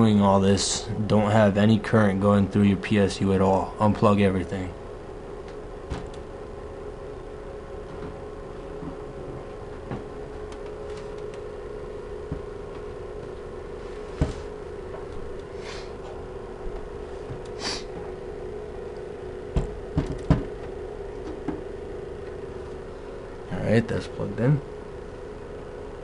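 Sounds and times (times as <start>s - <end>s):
steady low hum: 0.0s - 26.0s
cables plugged in clicking: 10.5s - 11.5s.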